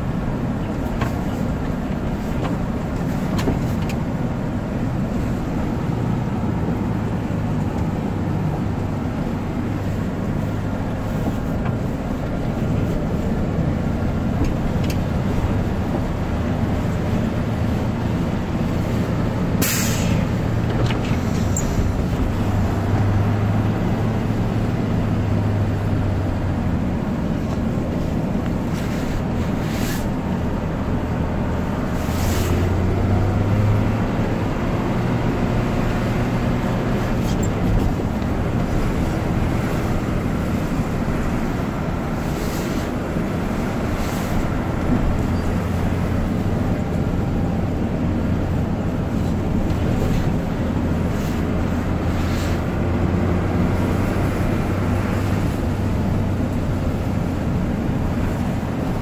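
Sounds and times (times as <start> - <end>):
truck engine running: 0.0 - 59.0
short hisses: 19.6 - 20.3.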